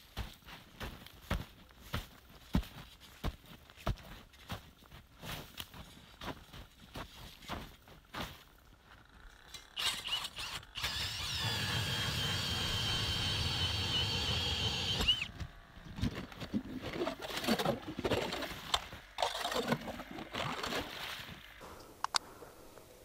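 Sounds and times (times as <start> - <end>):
cordless drill motor whine: 9.0 - 15.9.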